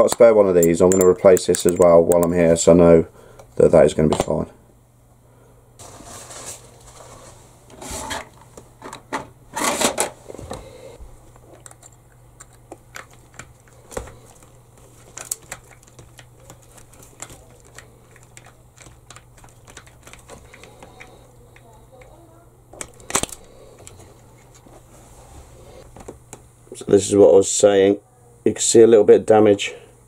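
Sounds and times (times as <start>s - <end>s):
small parts clicking and tapping: 0.0s - 2.4s, 11.4s - 22.2s
rustling scrapes: 5.8s - 8.4s, 24.0s - 25.8s.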